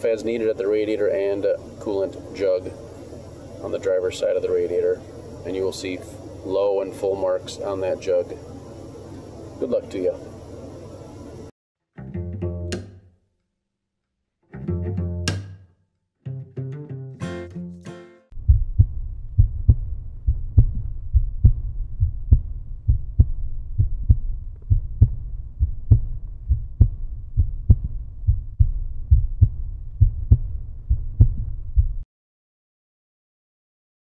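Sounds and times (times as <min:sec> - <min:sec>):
deep pulsing bass beat: 0:18.4 - 0:32.0.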